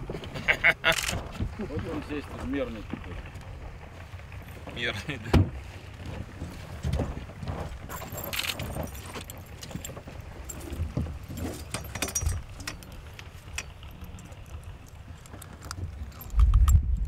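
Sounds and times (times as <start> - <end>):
wind rumbling on microphone: 0.0 - 17.0
fishing tackle clicking and rattling: 0.9 - 1.2, 7.9 - 16.9.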